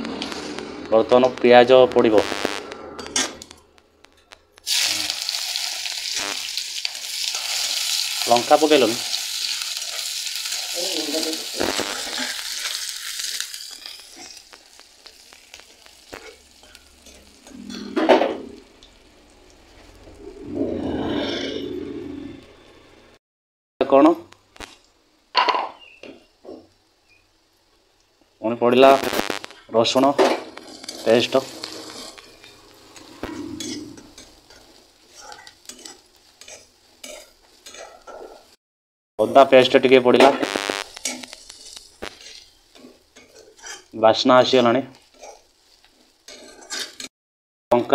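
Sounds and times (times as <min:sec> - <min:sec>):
onion sizzling in hot oil: 0:04.6 - 0:20.5, 0:24.2 - 0:38.6, 0:39.2 - 0:47.1
metal spatula clicks and scrapes: 0:33.6 - 0:38.2, 0:40.9 - 0:43.9, 0:45.0 - 0:45.4, 0:46.3 - 0:47.1.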